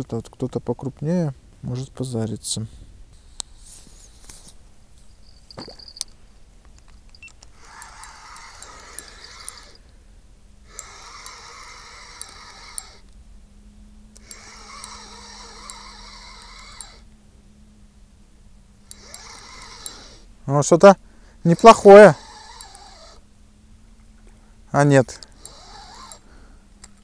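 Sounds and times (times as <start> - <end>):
reel clicks: 5.9 - 9.9, 10.6 - 13.2, 14.1 - 17.1, 18.8 - 20.3, 21.4 - 23.2, 25.0 - 27.0
fishing reel whirring: 7.2 - 13.1, 14.2 - 17.1, 18.8 - 20.3, 21.4 - 23.3, 25.0 - 27.0.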